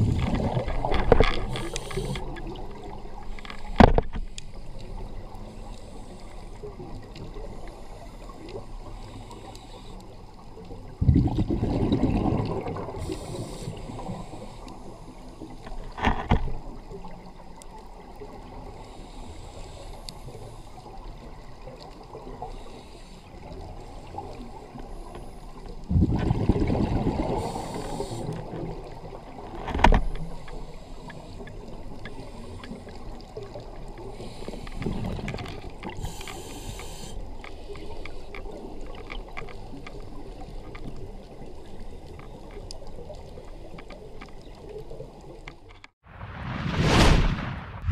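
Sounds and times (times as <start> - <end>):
regulator hiss: 1.4 - 2.4, 13.0 - 14.8, 27.4 - 28.4, 36.0 - 37.7
exhaled bubbles rushing: 11.0 - 13.1, 25.9 - 27.5.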